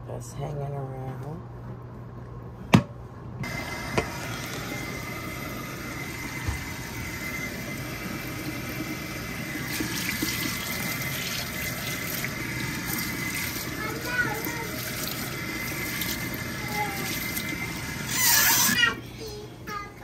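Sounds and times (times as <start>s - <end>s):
faucet running into steel sink: 3.4s - 18.9s.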